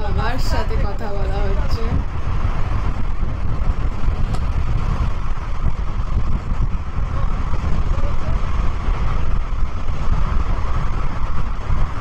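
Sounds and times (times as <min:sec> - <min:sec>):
road and wind noise: 0:00.0 - 0:12.0.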